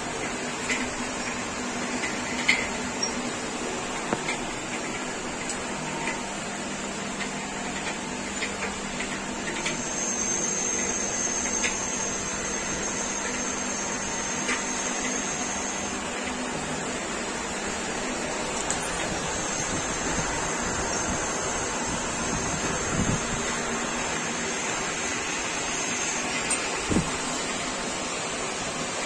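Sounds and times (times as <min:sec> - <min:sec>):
thin high whine: 0:09.4 - 0:28.6.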